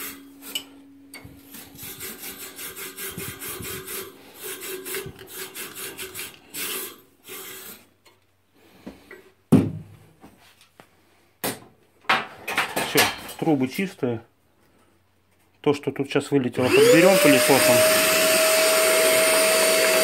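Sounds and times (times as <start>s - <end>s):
tube brush scraping in boiler tubes: 1.4s - 8.2s.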